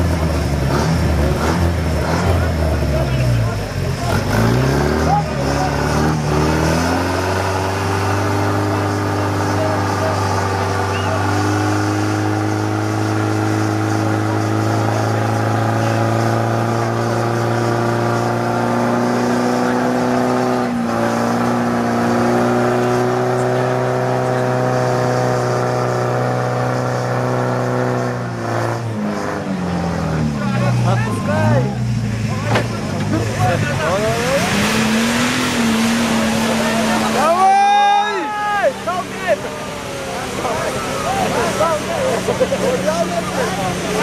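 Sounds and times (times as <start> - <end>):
off-road vehicle engine revving: 0.0 - 44.0.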